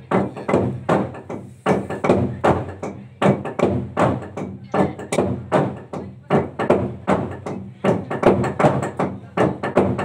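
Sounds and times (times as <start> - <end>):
log drum hammered with beaters: 0.0 - 10.0.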